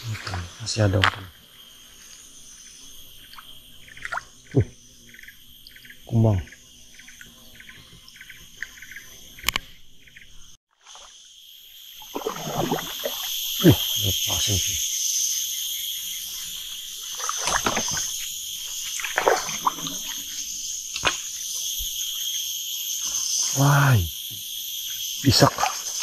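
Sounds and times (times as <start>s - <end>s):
crickets chirring: 0.0s - 26.0s
water splashing and sloshing: 3.0s - 4.8s, 10.7s - 11.2s, 11.9s - 14.7s, 16.2s - 22.3s, 25.3s - 26.0s.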